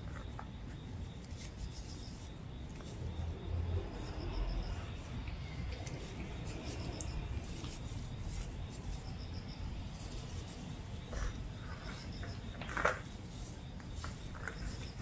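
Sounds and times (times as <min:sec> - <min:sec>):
rubbing and rustling of rope toy: 0:00.0 - 0:15.0
faint scratchy ticks: 0:04.1 - 0:13.1.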